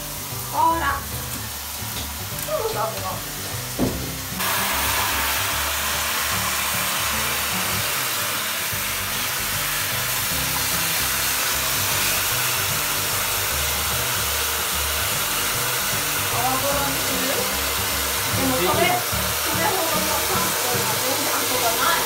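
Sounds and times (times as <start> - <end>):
shower spraying into plastic tub: 0.0 - 22.0
brief knock: 3.8 - 4.2.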